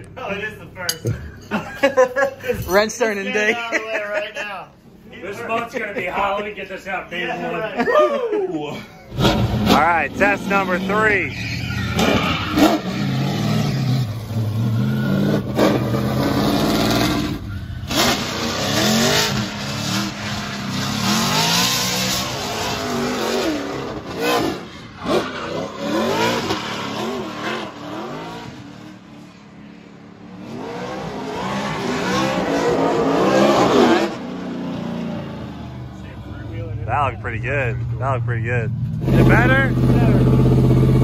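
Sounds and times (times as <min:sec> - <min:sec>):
car engine revving: 0:09.1 - 0:41.0.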